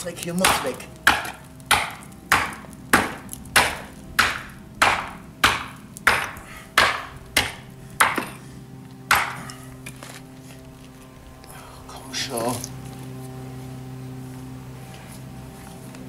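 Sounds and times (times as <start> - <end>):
hatchet striking steel chisel: 9.1 - 9.6.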